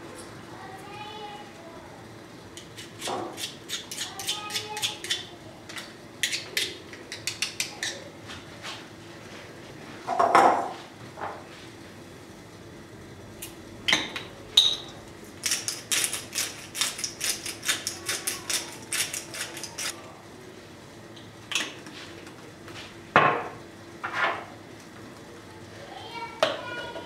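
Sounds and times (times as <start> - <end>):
spice grinder grinding: 2.6 - 8.0, 15.3 - 20.0.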